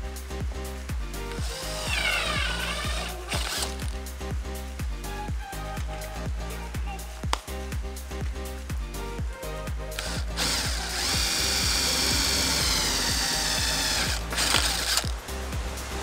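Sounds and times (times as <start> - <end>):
background music with steady beat: 0.0 - 16.0
power drill boring through wood: 1.4 - 4.0, 10.0 - 15.2.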